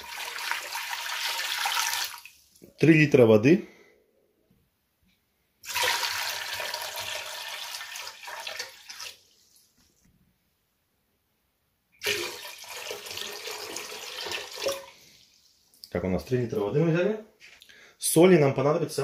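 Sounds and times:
water pouring into metal pot: 0.0 - 2.5, 5.6 - 9.4, 12.0 - 15.6.

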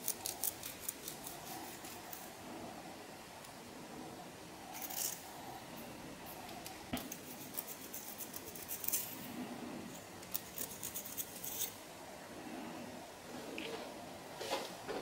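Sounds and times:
comb scratching through hair: 7.1 - 9.1.

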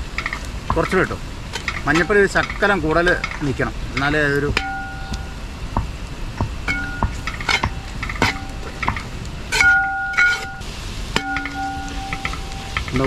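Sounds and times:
metal spoon stirring in pot: 6.7 - 10.6.

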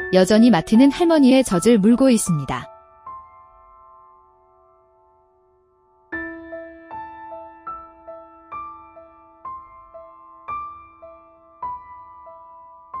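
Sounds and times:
slow solo piano: 2.7 - 13.0.

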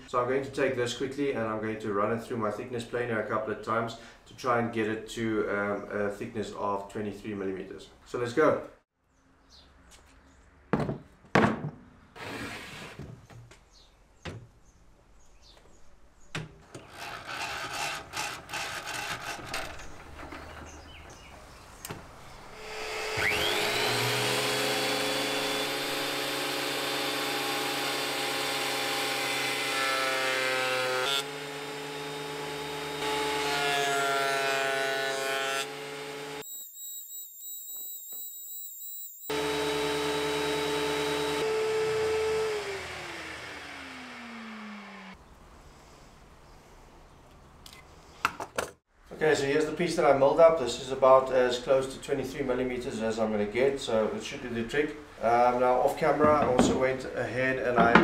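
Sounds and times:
planer motor whining: 22.6 - 29.3, 35.9 - 45.2
knocks and clatter of handling: 56.2 - 57.0, 57.8 - 58.0.

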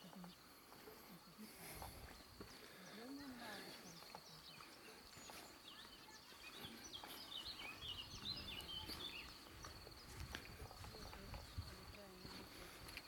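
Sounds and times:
low background noise: 0.0 - 13.0
bird chirping: 2.1 - 12.2.

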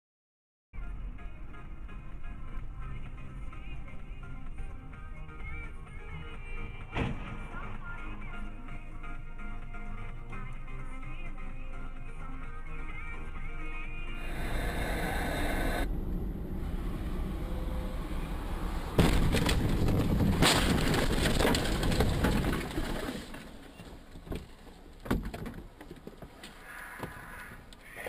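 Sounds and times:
road noise: 0.8 - 7.3, 14.0 - 28.0
loud car impact: 6.9 - 7.6, 18.4 - 23.3
loud crashing noise: 16.5 - 23.4.

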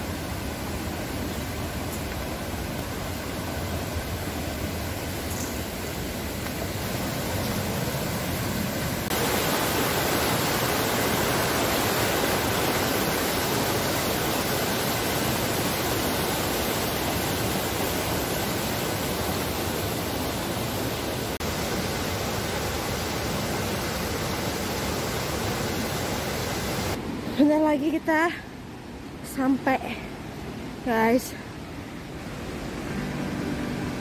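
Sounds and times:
waterfall roaring: 0.0 - 27.9, 31.8 - 34.0.

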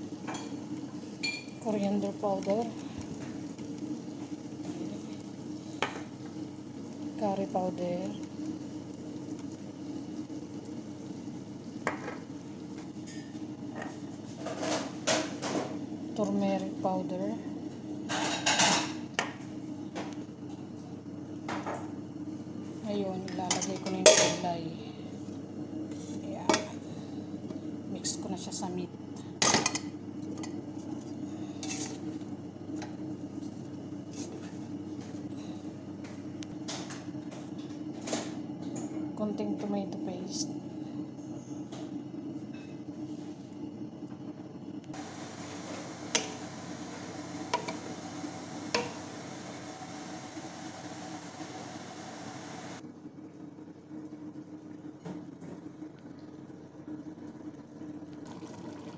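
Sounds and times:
steady low hum: 0.0 - 58.9
scraping against a pot: 31.4 - 32.1.

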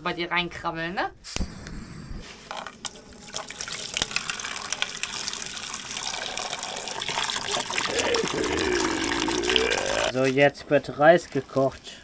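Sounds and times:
water pouring into metal pot: 2.6 - 10.1.

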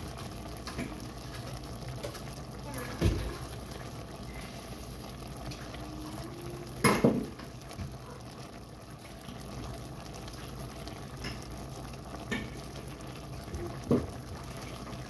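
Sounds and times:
sauce bubbling in a pan: 0.0 - 15.0.

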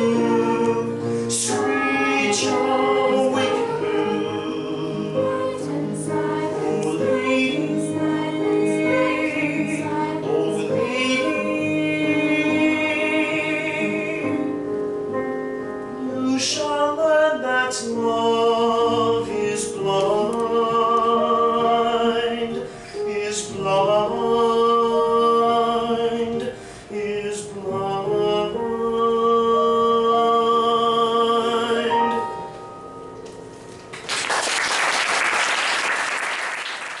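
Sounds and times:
slow song with accompaniment: 0.0 - 34.2
audience applauding: 33.9 - 37.0.

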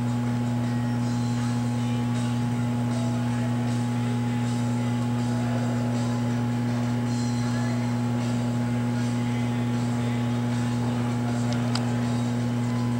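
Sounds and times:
furnace electrical hum: 0.0 - 12.9.

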